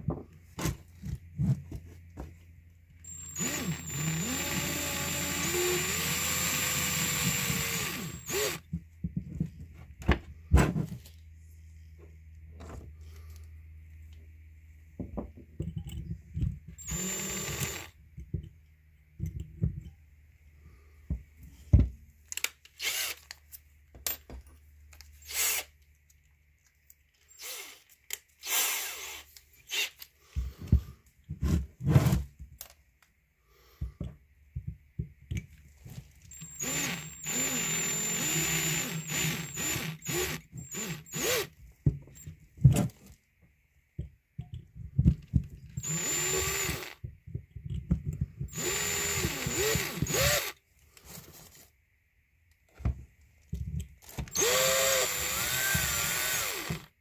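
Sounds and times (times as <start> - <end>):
cordless drill whining: 3.1 - 8.7, 16.8 - 18.0, 22.8 - 23.2, 25.2 - 25.7, 27.3 - 27.8, 28.4 - 30.0, 36.3 - 41.6, 45.8 - 47.0, 48.5 - 50.6, 54.3 - 56.9
tools clicking and knocking: 15.0 - 16.8, 18.1 - 20.0, 44.0 - 45.8, 47.0 - 50.2.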